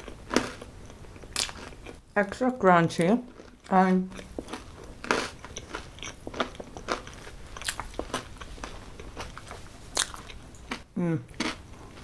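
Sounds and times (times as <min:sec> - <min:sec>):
crunchy pizza crust chewing: 0:03.3 - 0:12.0.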